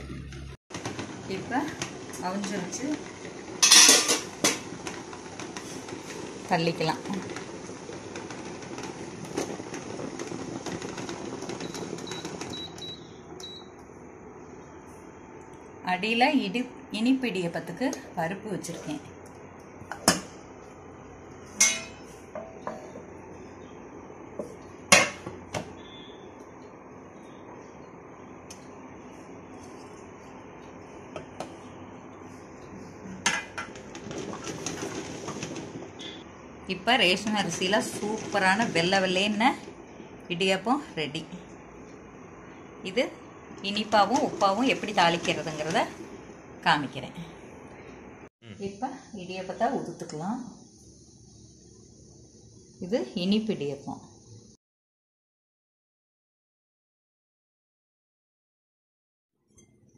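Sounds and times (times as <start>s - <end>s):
cooktop whirring hum: 0.0s - 54.6s, 59.4s - 59.9s
cookware clinking and clattering: 3.6s - 4.7s, 21.6s - 22.7s
metal cookware knocking: 21.6s - 22.6s.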